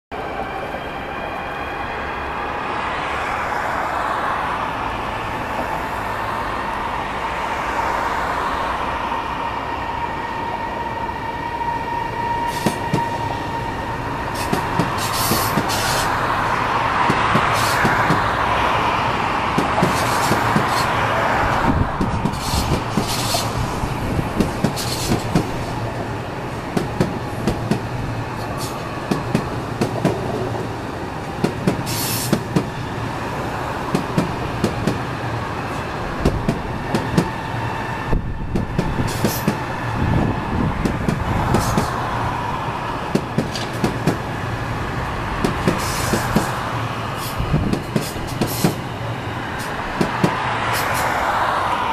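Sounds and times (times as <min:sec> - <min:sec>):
train wheels rumbling: 0:02.1 - 0:51.9
hiss: 0:14.4 - 0:16.2, 0:17.5 - 0:17.9, 0:31.8 - 0:32.4.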